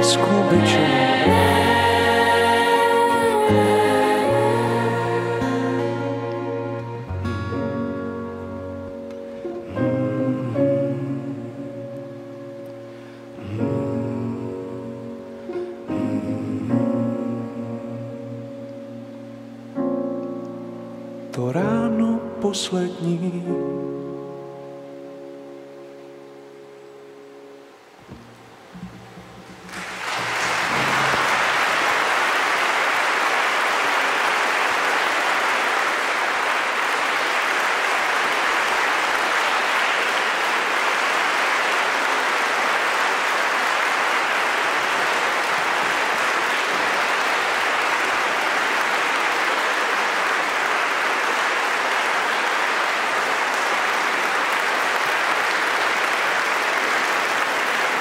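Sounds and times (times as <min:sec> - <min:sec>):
audience applauding: 0:28.8 - 0:58.0.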